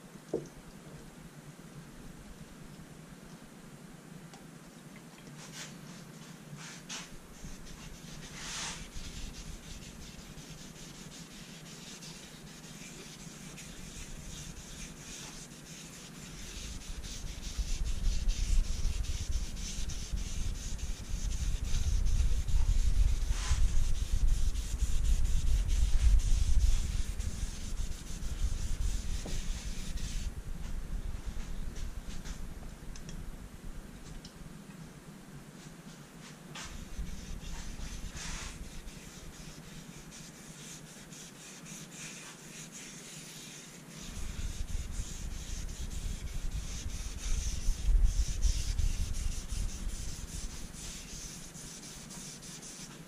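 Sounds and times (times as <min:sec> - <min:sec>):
cloth rubbing on wood: 0:05.4 - 0:30.3, 0:36.5 - 0:53.0.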